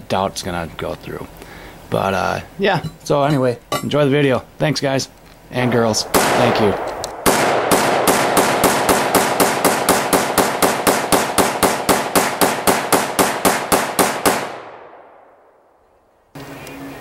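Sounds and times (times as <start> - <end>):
rifle shots with echo: 5.6 - 15.6.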